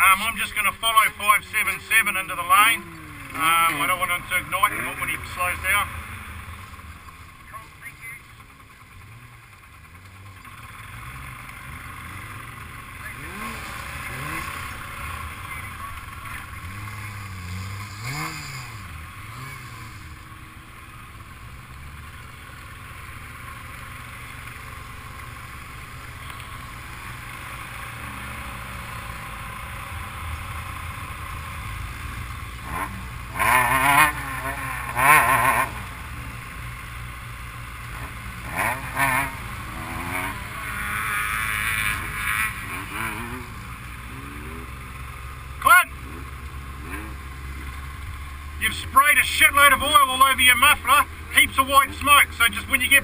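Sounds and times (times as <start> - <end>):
quad bike engine running: 0.0 - 53.0
engine revving bursts: 10.6 - 20.5, 32.5 - 36.2, 37.8 - 53.0.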